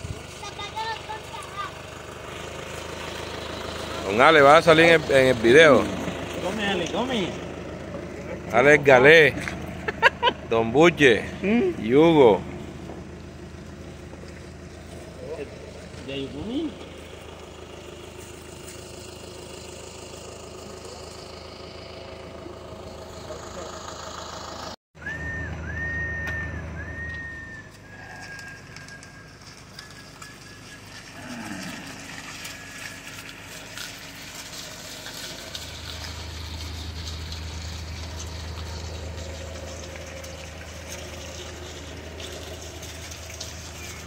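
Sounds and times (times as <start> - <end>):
low motor hum: 0.0 - 44.0
cattle hooves shuffling: 11.0 - 19.5, 25.6 - 44.0
short high whistles: 25.0 - 31.2.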